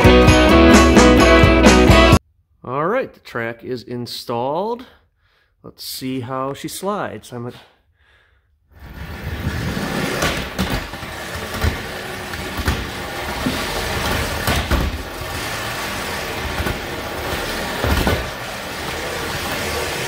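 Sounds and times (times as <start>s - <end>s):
trolley wheels rattling on rail: 9.6s - 20.0s.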